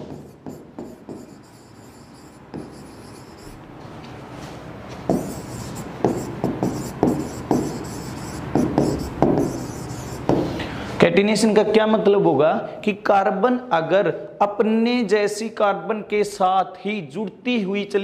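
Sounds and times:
pen scratching on board: 0.0 - 3.6, 5.1 - 10.5.

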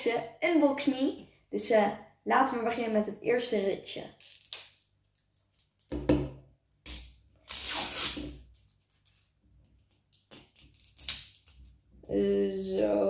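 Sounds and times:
plastic wrapping tearing: 6.8 - 9.3, 10.1 - 11.6.

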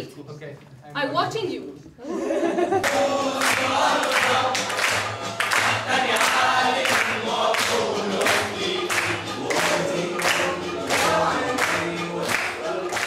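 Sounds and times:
young people singing in chorus: 2.3 - 13.0
hand claps: 2.8 - 13.0.

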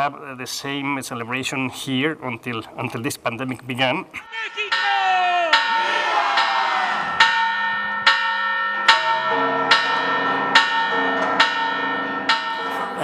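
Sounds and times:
large bells ringing: 4.3 - 13.0.

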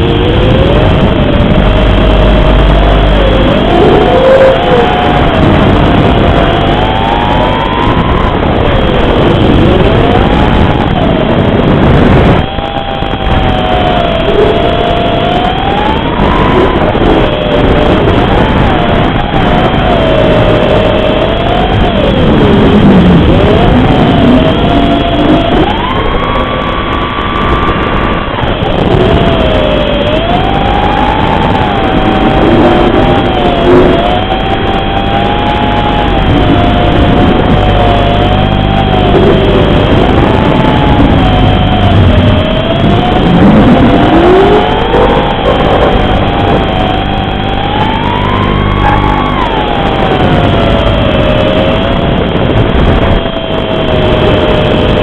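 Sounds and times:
quadcopter motors whining: 0.0 - 55.0.

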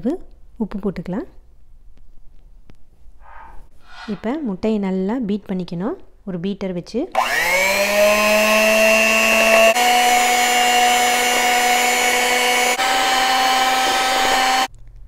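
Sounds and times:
electric hand mixer whirring: 7.2 - 14.7.

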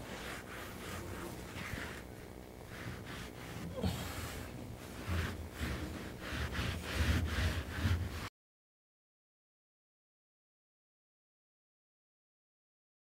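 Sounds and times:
hands rubbing carpet padding: 0.0 - 8.3.

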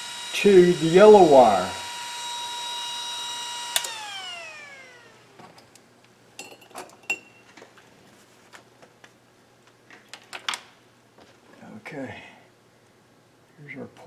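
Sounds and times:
cooling fan whining: 0.0 - 6.2.

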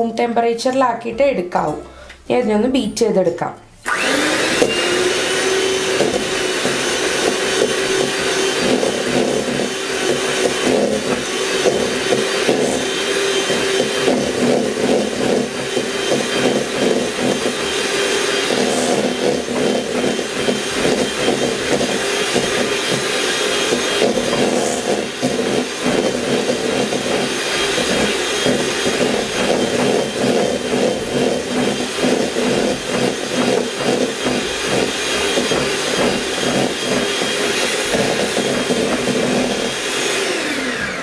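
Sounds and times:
electric hand mixer whipping butter: 3.8 - 41.0.

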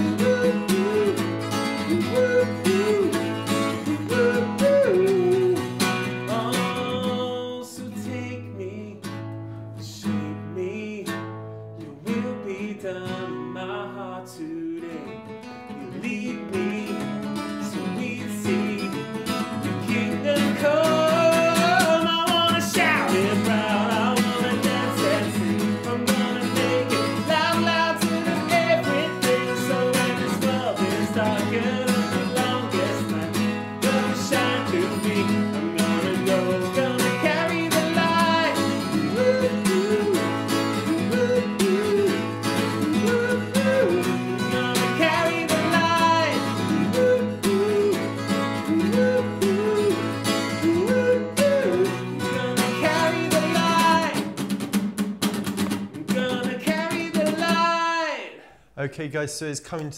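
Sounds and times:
person singing worship song: 0.0 - 8.7, 19.8 - 54.3
strummed acoustic guitar: 0.0 - 58.5.

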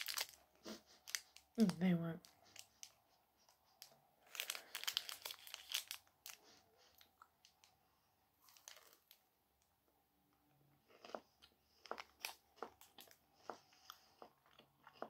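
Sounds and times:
plastic wrapper crinkling: 0.0 - 3.0, 3.7 - 7.8, 8.4 - 9.2.

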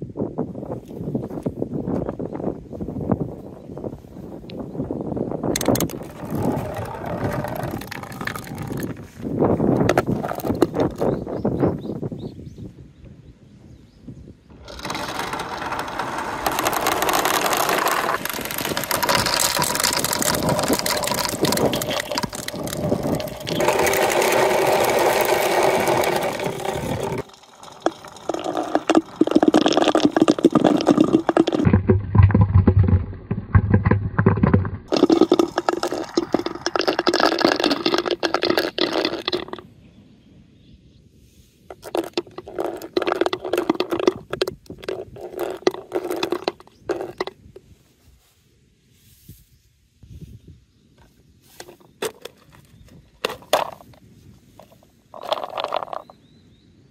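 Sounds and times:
balls rattling down plastic marble run: 5.6 - 9.0, 9.9 - 11.1, 14.6 - 39.6, 41.7 - 47.3, 54.6 - 56.1.

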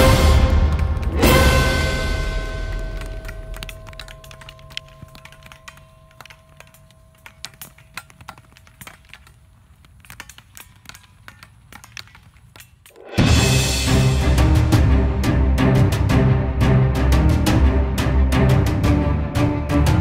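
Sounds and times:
background music: 0.0 - 7.8, 12.9 - 20.0
sticks clacking: 2.6 - 13.2.

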